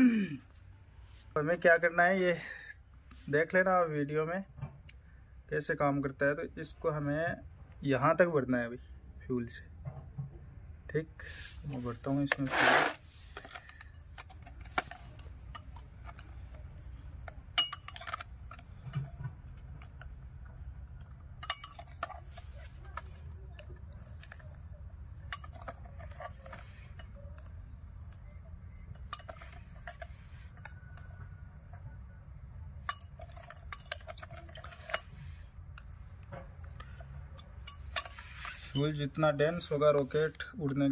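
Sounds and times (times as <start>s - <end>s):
spoon scraping powder: 11.4s - 13.9s, 21.4s - 31.2s, 32.8s - 36.2s, 37.6s - 40.8s
metal spoon clinking on glass: 17.6s - 18.6s, 21.4s - 22.4s, 32.8s - 35.1s.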